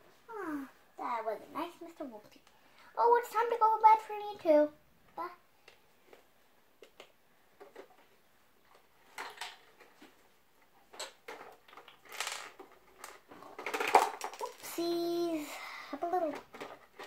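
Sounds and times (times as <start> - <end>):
plastic toy pieces clicking: 11.0 - 14.8, 16.1 - 17.0.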